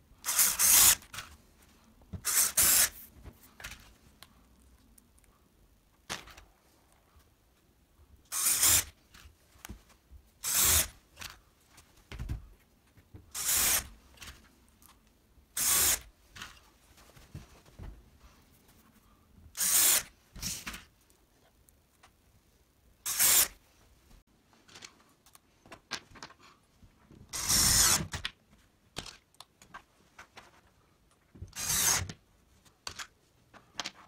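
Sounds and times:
cordless drill boring into wood: 0:08.3 - 0:08.8, 0:10.4 - 0:10.9, 0:13.4 - 0:13.9, 0:15.6 - 0:16.0, 0:19.6 - 0:20.0, 0:23.1 - 0:23.5, 0:27.4 - 0:28.0, 0:31.6 - 0:32.0.

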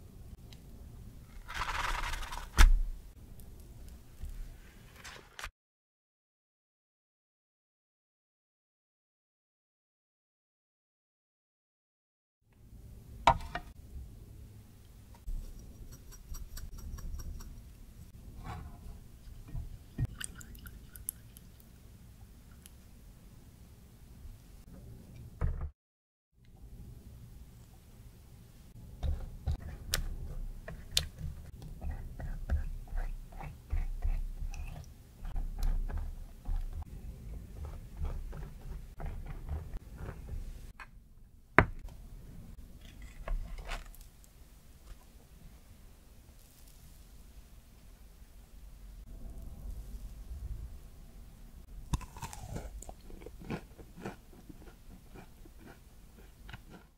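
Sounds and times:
spice jar clinking: 0:15.3 - 0:17.7.

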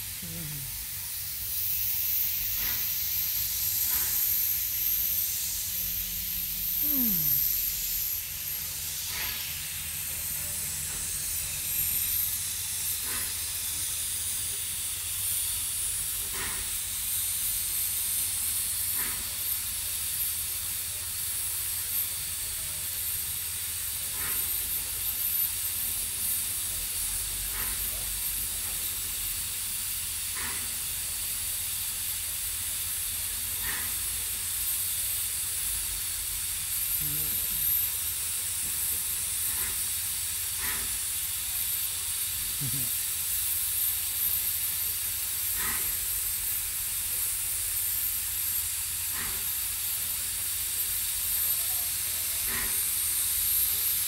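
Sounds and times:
steam locomotive hissing: 0:00.0 - 0:54.0
soft steam puff: 0:01.6 - 0:04.6, 0:08.9 - 0:09.7.

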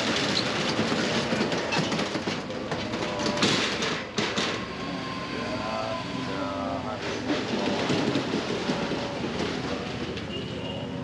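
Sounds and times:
metal roller shutter rattling: 0:00.0 - 0:04.8, 0:06.3 - 0:10.7.

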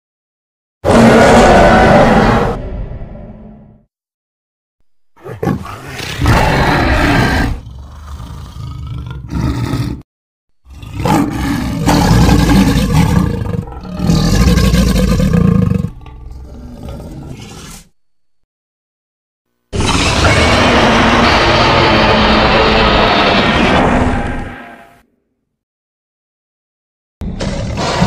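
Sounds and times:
dinosaur roars: 0:00.8 - 0:03.6, 0:05.2 - 0:10.0, 0:10.6 - 0:17.8, 0:19.7 - 0:25.0, 0:27.2 - 0:28.0.

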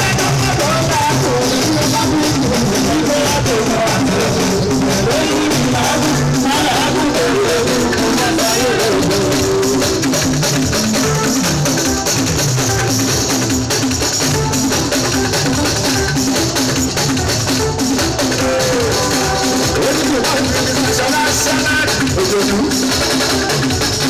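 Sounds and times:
person singing: 0:00.0 - 0:10.3, 0:17.9 - 0:22.8
bass guitar: 0:00.0 - 0:24.0
drums and percussion: 0:00.0 - 0:24.0.

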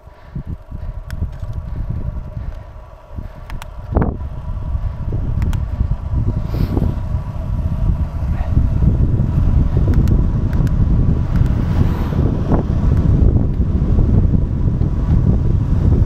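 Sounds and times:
wind buffeting microphone: 0:00.0 - 0:16.0
light clicks: 0:03.4 - 0:03.8, 0:05.4 - 0:05.7, 0:09.8 - 0:11.6.

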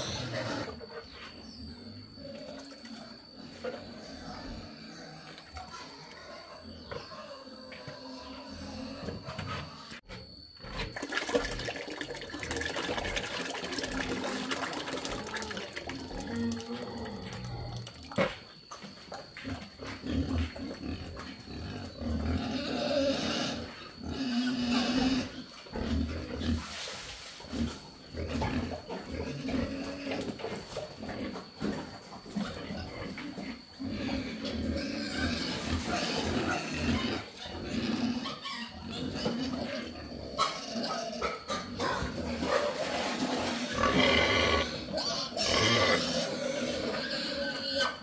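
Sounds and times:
pigs grunting: 0:00.0 - 0:48.0
thick feed pouring into bucket: 0:10.9 - 0:16.7.

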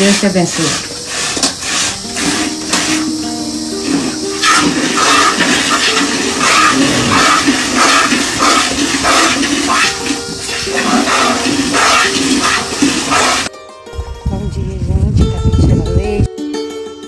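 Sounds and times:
background music: 0:00.1 - 0:17.0
milk squirting into metal pail: 0:03.8 - 0:13.5.

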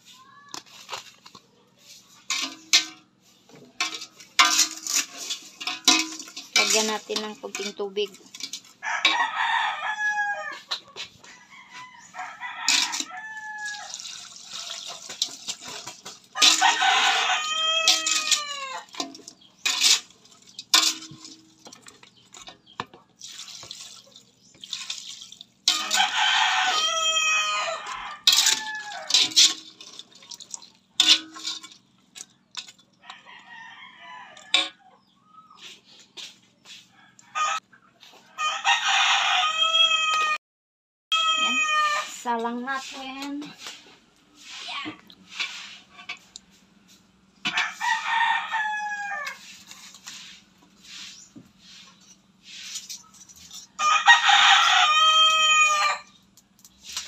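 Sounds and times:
rooster crowing: 0:08.8 - 0:14.1, 0:16.4 - 0:18.9, 0:25.7 - 0:29.4, 0:33.1 - 0:34.8, 0:37.0 - 0:37.6, 0:38.4 - 0:40.4, 0:41.1 - 0:42.1, 0:47.5 - 0:49.4, 0:53.8 - 0:56.1.

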